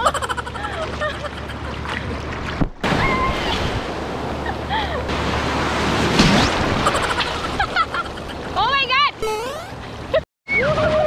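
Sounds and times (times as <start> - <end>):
sea surf washing: 2.8 - 8.9
wave breaking: 5.1 - 8.6.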